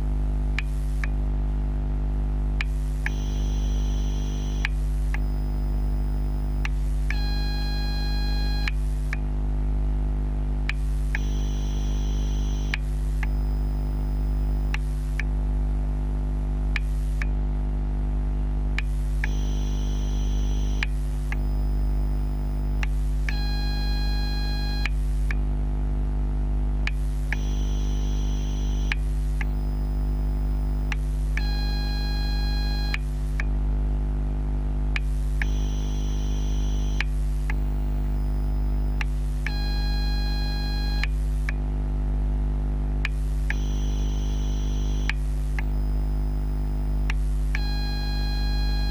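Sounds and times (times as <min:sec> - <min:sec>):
electrical hum and buzz: 0:00.0 - 0:48.9
faint ticks: 0:02.6 - 0:05.3, 0:16.8 - 0:17.3, 0:18.8 - 0:21.6, 0:28.7 - 0:29.6, 0:35.0 - 0:38.3
high-pitched electrical whines: 0:03.0 - 0:06.7, 0:11.1 - 0:14.8, 0:19.2 - 0:24.9, 0:27.3 - 0:33.0, 0:35.4 - 0:39.1, 0:43.5 - 0:48.9.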